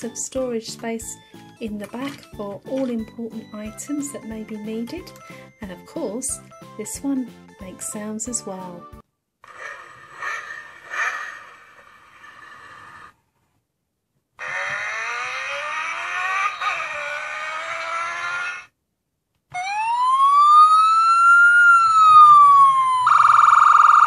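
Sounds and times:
toy engine revving sound: 9.4s - 13.2s, 14.4s - 18.7s
toy siren wail: 14.4s - 18.7s, 19.5s - 24.0s.

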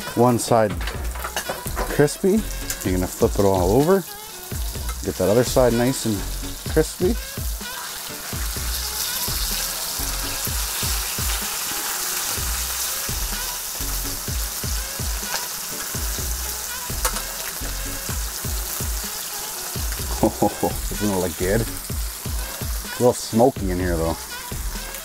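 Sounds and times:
metal tongs clinking on pan: 0.0s - 3.0s, 17.0s - 17.4s
fish frying in oil: 0.0s - 25.0s.

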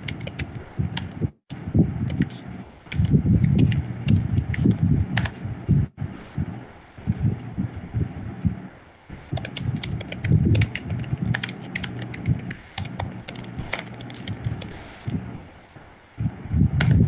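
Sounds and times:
typing on a keyboard: 0.0s - 1.2s, 2.0s - 5.4s, 9.3s - 15.2s.

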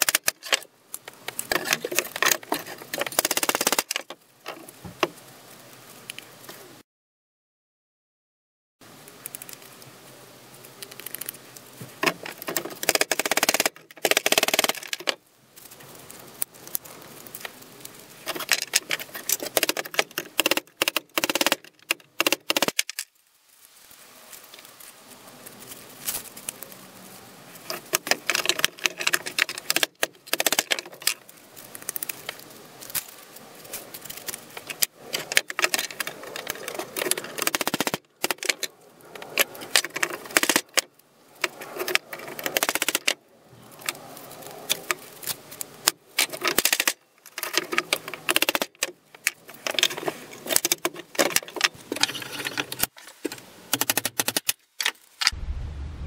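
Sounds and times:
loose metal parts clinking: 46.2s - 55.0s.

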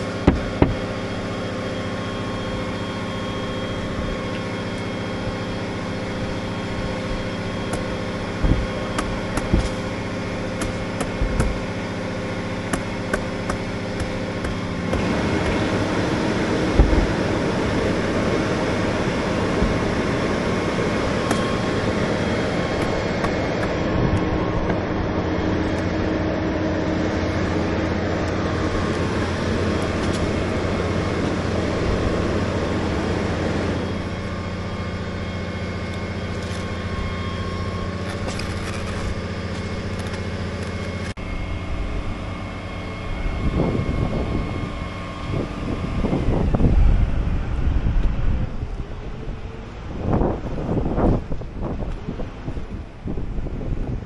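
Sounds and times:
diesel engine humming: 0.0s - 54.0s
wind gusts on microphone: 43.1s - 54.0s.

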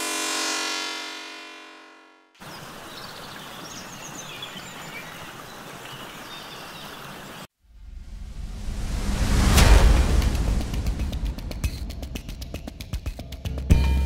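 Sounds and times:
faint bird chirps: 2.4s - 7.5s
low rumble: 7.6s - 13.6s.

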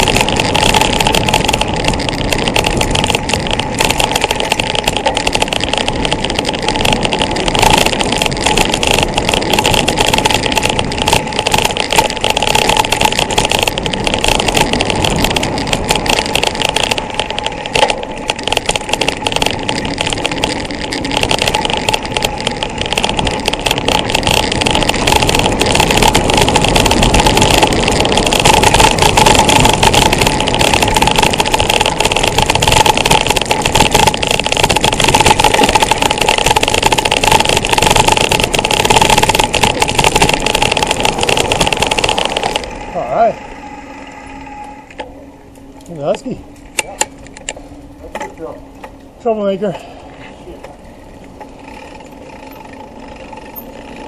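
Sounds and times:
wind on microphone: 0.0s - 42.7s
mountain bike rattle and tyre rumble: 0.0s - 54.0s.

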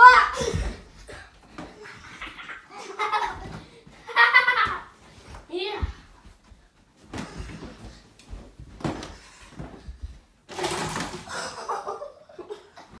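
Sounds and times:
soft thumps from bodies and fabric: 4.7s - 10.5s.

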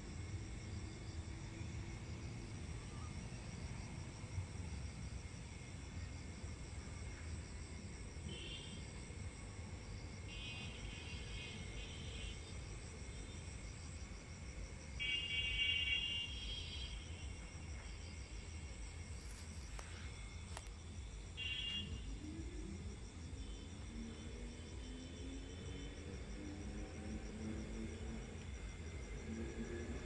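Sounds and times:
insects chirring: 0.1s - 30.0s
low outdoor rumble: 16.8s - 30.0s.

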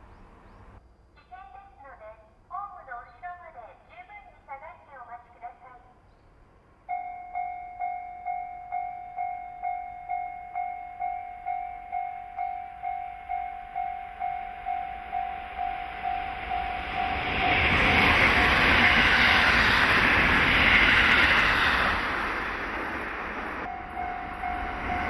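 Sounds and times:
train passing: 6.4s - 25.0s
level crossing bell ringing: 6.9s - 17.7s, 23.7s - 25.0s.

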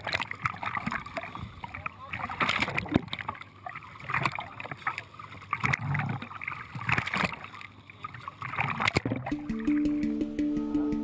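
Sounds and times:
water splashing and dripping: 0.0s - 11.0s
music: 9.3s - 11.0s.

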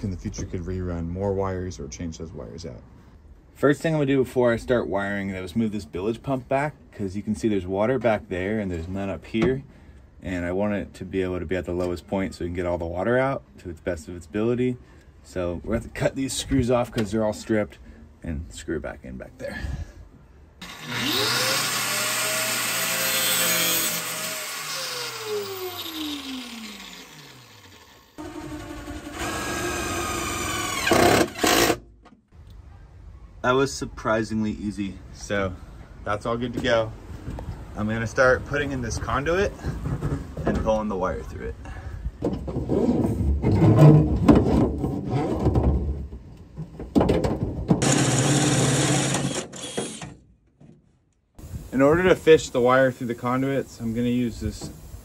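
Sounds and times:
cordless drill running: 20.6s - 31.6s, 47.8s - 50.0s
power tool grinding: 20.6s - 31.8s, 47.8s - 50.1s.

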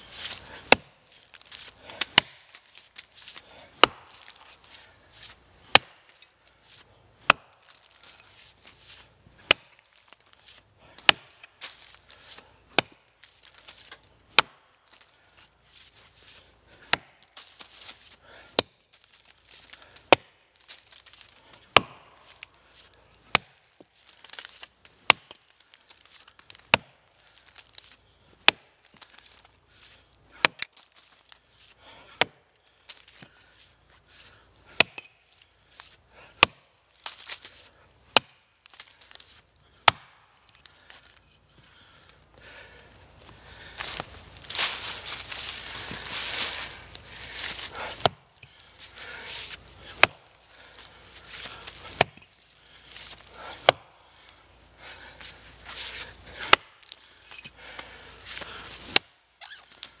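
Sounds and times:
axe chopping into wood: 0.3s - 2.6s, 3.8s - 4.6s, 5.7s - 6.2s, 7.2s - 7.7s, 9.4s - 9.8s, 11.0s - 13.0s, 13.8s - 14.6s, 16.9s - 17.7s, 18.5s - 18.8s, 20.1s - 20.4s, 21.7s - 22.3s, 23.3s - 23.6s, 24.3s - 25.4s, 26.7s - 27.0s, 28.4s - 28.7s, 30.4s - 30.8s, 32.1s - 32.4s, 34.7s - 35.2s, 36.4s - 37.4s, 38.1s - 38.4s, 39.8s - 40.2s, 47.4s - 48.2s, 49.8s - 50.3s, 51.5s - 52.3s, 53.6s - 53.9s, 56.3s - 57.0s, 58.4s - 59.1s.

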